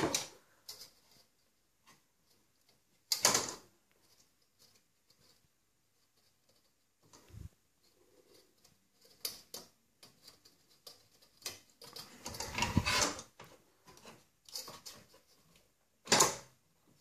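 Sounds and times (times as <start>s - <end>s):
clicks and rattles of computer parts: 3.0s - 3.7s, 16.0s - 16.6s.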